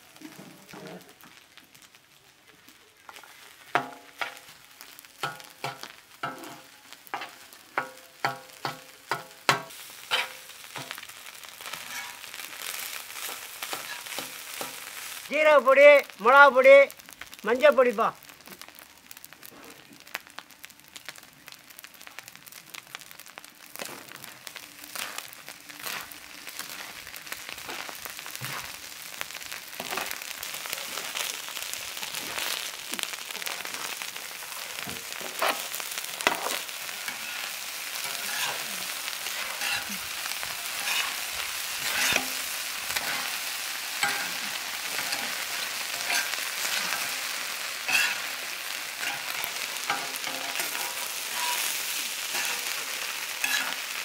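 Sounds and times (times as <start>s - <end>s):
rice sizzling on a griddle: 0.0s - 54.0s
metal spatula scraping griddle: 5.2s - 11.0s, 11.7s - 12.3s, 13.2s - 14.8s, 35.3s - 41.2s, 41.8s - 43.4s, 44.0s - 47.2s, 47.8s - 48.4s, 49.0s - 53.8s.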